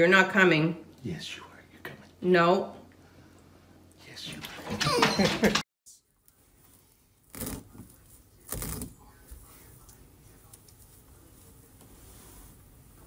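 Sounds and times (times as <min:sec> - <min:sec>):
carpet tearing up from floor: 0:07.3 - 0:07.8, 0:08.4 - 0:08.9.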